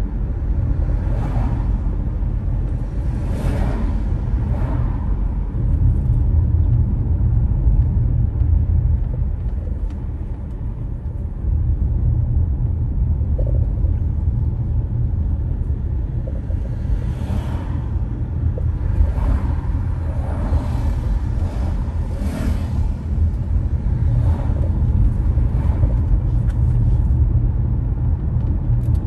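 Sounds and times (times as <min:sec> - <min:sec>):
car engine and road rumble: 0:00.0 - 0:29.0.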